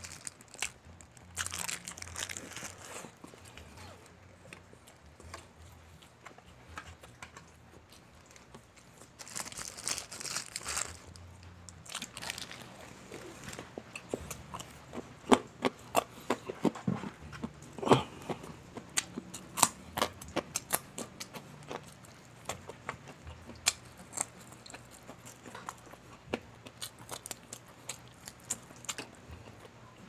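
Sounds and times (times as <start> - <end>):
paper wrapper crinkling: 0.0 - 3.2, 8.2 - 13.7
crisp crunches of chewing: 0.0 - 29.8.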